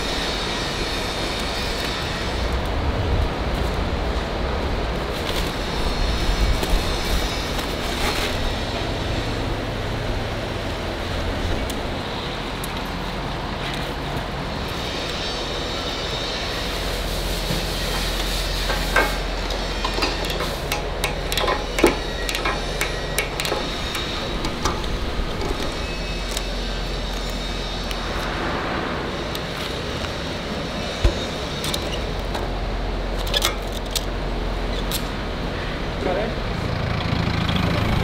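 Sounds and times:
factory machinery hum: 0:00.0 - 0:38.0
ratchet strap clicking: 0:18.7 - 0:28.0.

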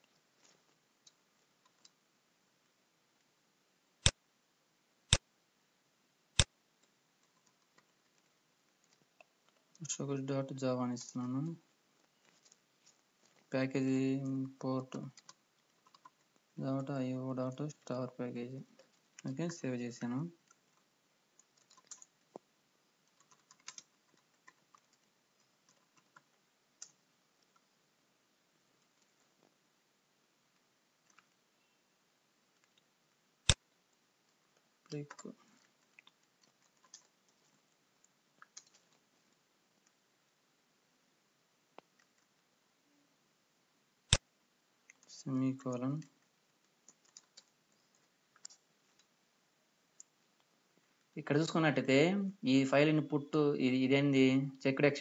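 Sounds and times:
computer mouse clicks: 0:00.0 - 0:02.0, 0:15.0 - 0:16.6, 0:20.4 - 0:27.7, 0:31.0 - 0:31.4, 0:32.5 - 0:33.8, 0:34.8 - 0:40.0, 0:41.7 - 0:42.4, 0:44.1 - 0:45.1, 0:45.7 - 0:49.2, 0:49.9 - 0:50.5
keyboard typing: 0:06.4 - 0:09.9, 0:14.2 - 0:17.0, 0:20.2 - 0:27.7, 0:34.9 - 0:40.0, 0:45.7 - 0:49.2.

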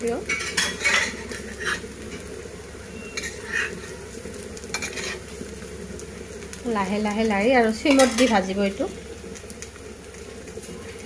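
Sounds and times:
patties sizzling in oil: 0:00.0 - 0:11.0
metal spatula scraping pan: 0:00.3 - 0:02.2, 0:03.0 - 0:04.0, 0:04.7 - 0:05.3, 0:07.9 - 0:08.4.

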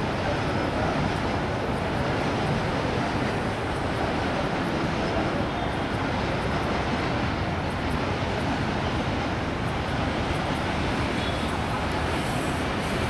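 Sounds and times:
freight train rumbling: 0:00.0 - 0:13.0
faint high ticks: 0:11.8 - 0:12.2.

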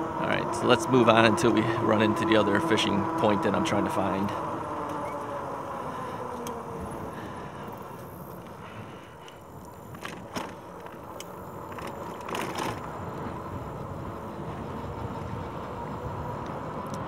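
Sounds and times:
bike tyres rolling on trail: 0:00.0 - 0:17.0
bike clicks and rattles: 0:03.8 - 0:17.0.

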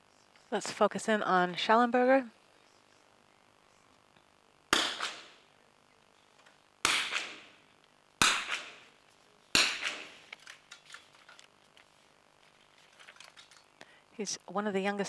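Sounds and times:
rifle shots echoing: 0:04.7 - 0:05.5, 0:06.8 - 0:07.6, 0:08.2 - 0:11.1.

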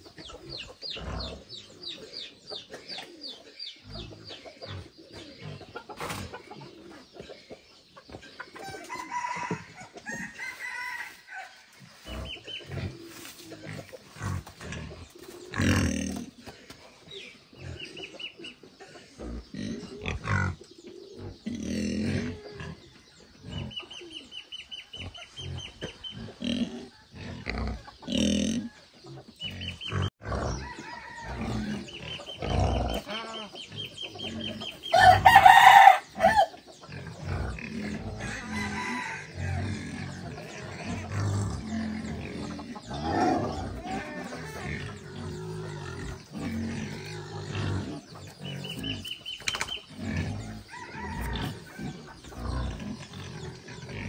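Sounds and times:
chickens clucking: 0:00.0 - 0:54.0
rooster crowing: 0:08.7 - 0:11.6, 0:30.5 - 0:31.8, 0:34.9 - 0:36.5, 0:38.2 - 0:39.6, 0:50.6 - 0:52.0.

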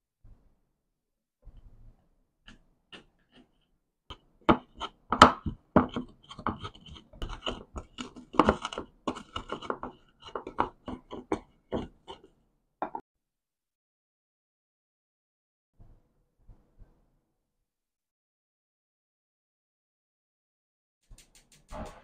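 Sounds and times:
pestle crunching in mortar: 0:04.1 - 0:12.3.

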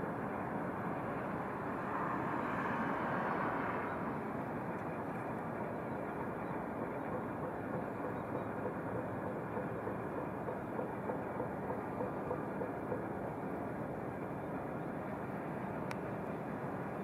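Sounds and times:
distant train rumble: 0:00.0 - 0:17.0.

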